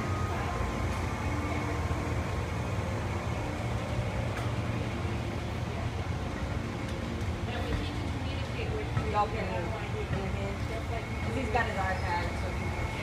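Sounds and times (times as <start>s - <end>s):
passenger train humming: 0.0s - 13.0s.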